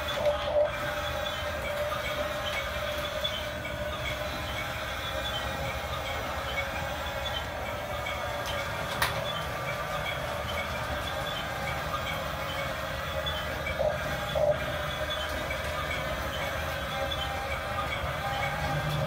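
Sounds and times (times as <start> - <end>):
toy bulldozer motors whirring: 0.0 - 19.0.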